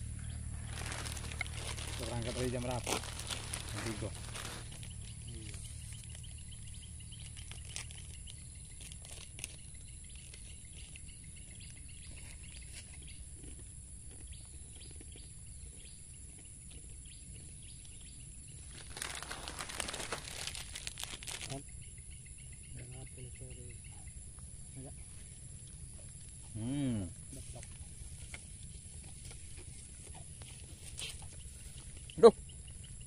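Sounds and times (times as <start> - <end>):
low rumble: 0.0 - 8.2
rustling and handling noise: 0.4 - 6.2, 18.7 - 21.6
faint chirps and ticks: 4.8 - 19.0, 21.5 - 33.0.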